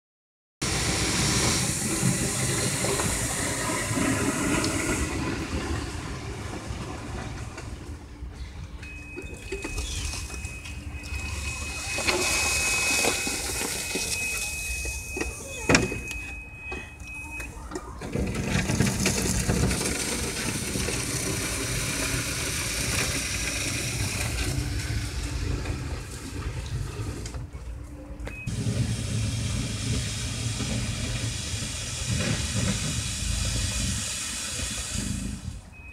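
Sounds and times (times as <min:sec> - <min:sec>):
golf cart driving: 0:00.6 - 0:15.3, 0:18.1 - 0:35.9
steady high tone: 0:07.8 - 0:18.0.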